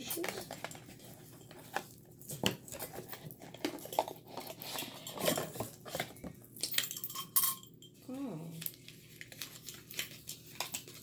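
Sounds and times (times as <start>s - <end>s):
paper packaging rustling: 0.0s - 6.5s, 8.7s - 11.0s.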